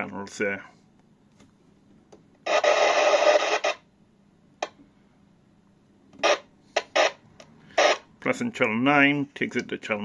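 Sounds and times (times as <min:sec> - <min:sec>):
radio static hiss: 0:02.4 - 0:03.9, 0:06.2 - 0:09.3.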